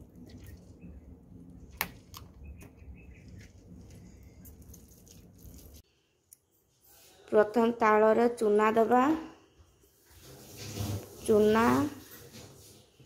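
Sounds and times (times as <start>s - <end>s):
bird chirps: 2.4s - 3.6s
wet squelching of fruit pulp: 3.2s - 5.8s.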